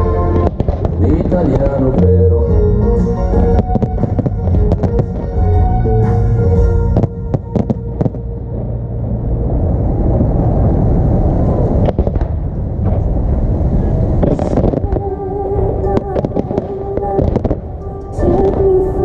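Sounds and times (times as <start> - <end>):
music over loudspeakers: 0.0 - 8.4, 14.6 - 19.0
fireworks bursting and cracking: 0.3 - 2.2, 3.6 - 6.2, 11.6 - 18.8.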